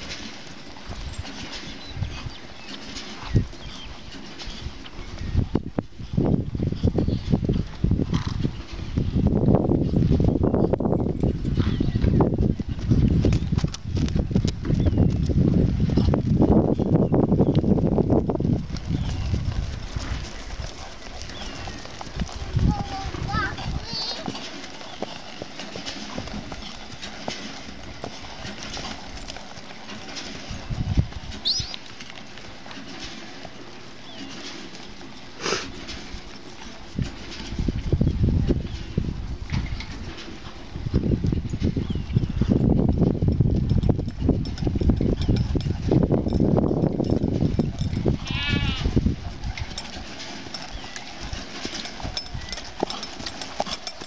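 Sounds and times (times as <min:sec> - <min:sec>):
horse hoofbeats on dirt: 0:00.0 - 0:54.0
farm animal bleat: 0:48.1 - 0:49.0.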